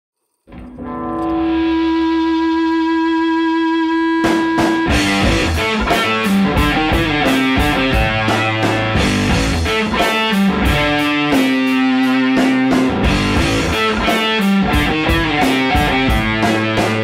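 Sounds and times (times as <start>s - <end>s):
band with steady beat: 4.2s - 17.0s.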